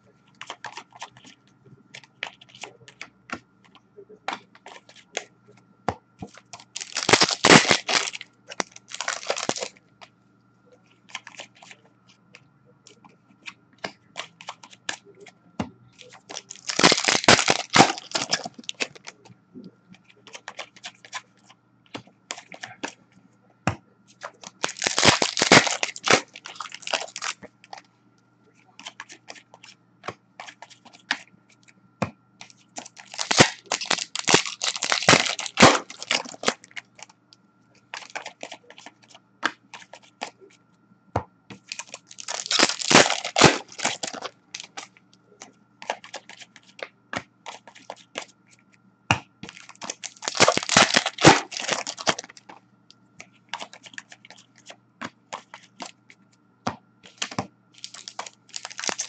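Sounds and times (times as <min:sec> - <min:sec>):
card packs being torn open: 0:06.6 - 0:09.7, 0:16.3 - 0:19.1, 0:24.4 - 0:27.4, 0:32.8 - 0:36.8, 0:38.0 - 0:38.6, 0:41.7 - 0:44.9, 0:49.5 - 0:52.4, 0:57.2 - 0:59.0.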